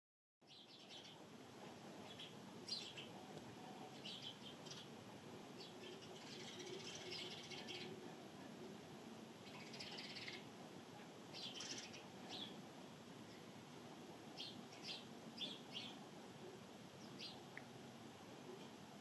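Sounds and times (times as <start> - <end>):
sparrows chirping: 0.4 - 8.6, 9.4 - 13.7, 14.3 - 16.0, 16.9 - 17.6
faint hiss of pouring rain: 0.4 - 19.0.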